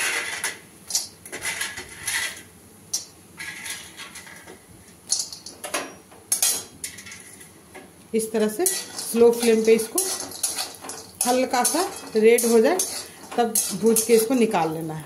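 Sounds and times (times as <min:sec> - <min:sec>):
metal spatula scraping pan: 0:01.3 - 0:02.5, 0:03.4 - 0:04.5, 0:08.6 - 0:14.6.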